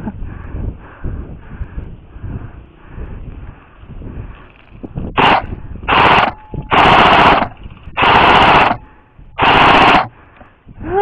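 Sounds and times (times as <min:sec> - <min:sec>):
airsoft rifle firing bursts: 0:05.2 - 0:10.2.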